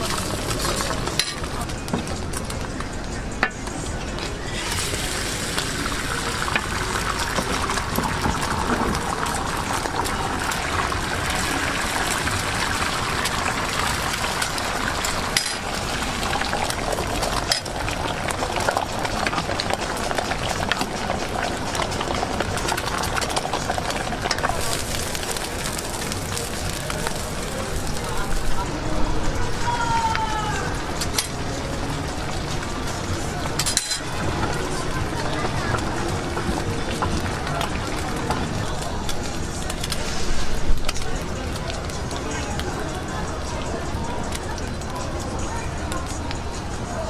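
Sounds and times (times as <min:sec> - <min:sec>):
egg sizzling in oil: 0:04.5 - 0:28.5.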